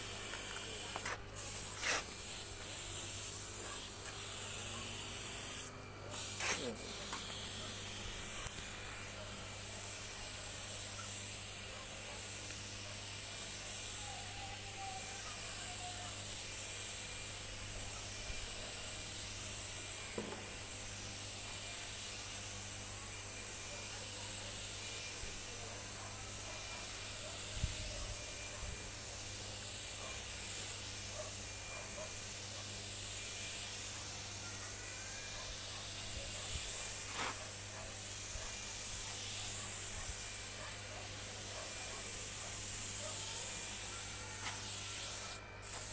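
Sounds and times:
spray gun hissing: 0.0 - 12.6, 23.5 - 45.9
compressor motor humming: 0.0 - 45.9.

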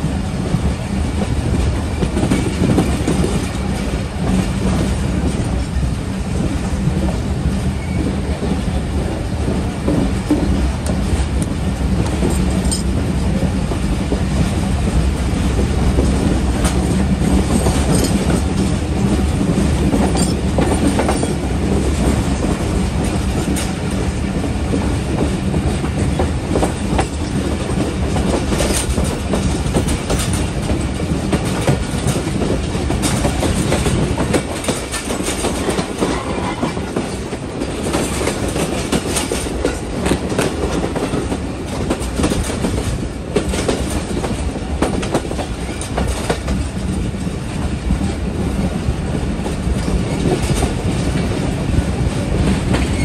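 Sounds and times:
train rolling noise: 0.0 - 53.0
train wheels clacking over rail joints: 0.0 - 53.0
wind: 0.0 - 53.0.

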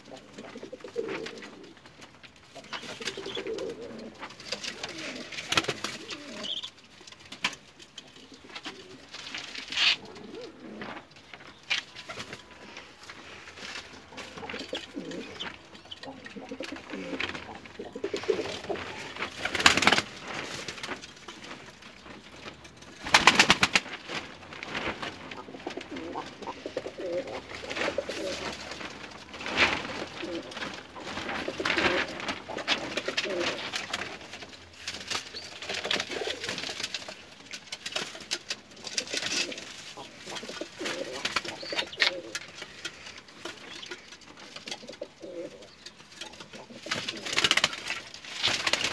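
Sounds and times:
pigeons cooing: 0.0 - 1.8, 2.6 - 6.7, 9.7 - 11.0, 14.2 - 19.4, 25.3 - 28.8, 29.6 - 33.8, 39.0 - 43.0, 44.7 - 47.6.

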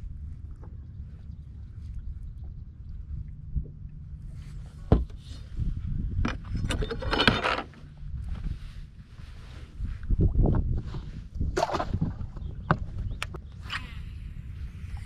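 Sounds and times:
low steady rumble: 0.0 - 15.0
knocks and rustling on boat deck: 4.6 - 5.4.

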